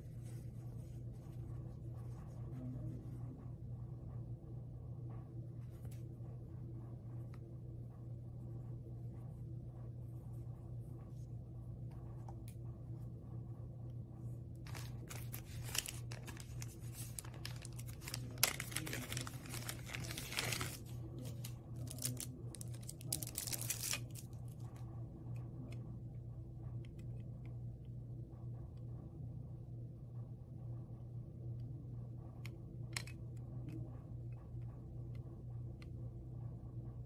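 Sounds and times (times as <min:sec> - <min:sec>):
plastic bag crinkling: 0:14.7 - 0:24.3.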